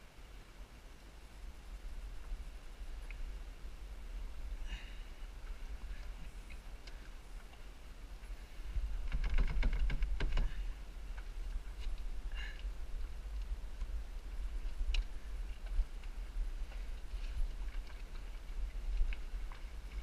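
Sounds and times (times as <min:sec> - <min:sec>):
wind buffeting microphone: 0:01.6 - 0:20.0
knocks and clatters: 0:09.0 - 0:10.6.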